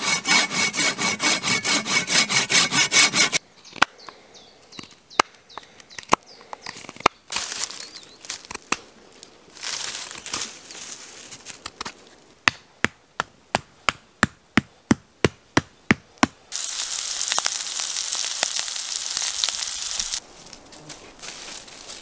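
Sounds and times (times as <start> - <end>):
meat sizzling in a pan: 16.6 - 20.2.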